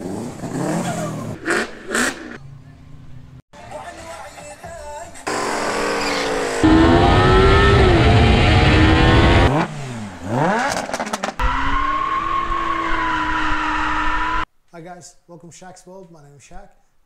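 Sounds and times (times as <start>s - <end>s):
exhaust cracks: 5.3s - 13.4s
car engine revving: 5.3s - 14.4s.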